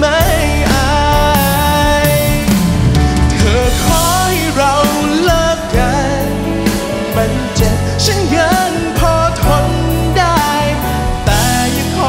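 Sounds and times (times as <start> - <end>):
man singing into microphone: 0.0 - 2.6, 3.3 - 12.0
live band playing: 0.0 - 12.0.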